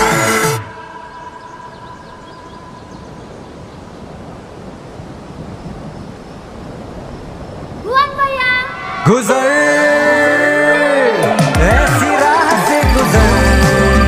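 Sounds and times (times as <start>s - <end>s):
outdoor background hiss and rumble: 1.1s - 8.8s.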